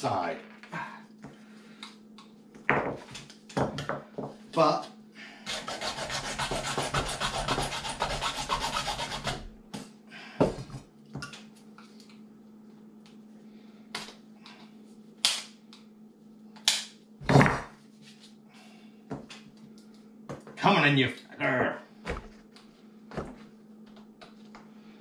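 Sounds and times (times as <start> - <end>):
hacksaw sawing plastic: 5.4 - 9.4.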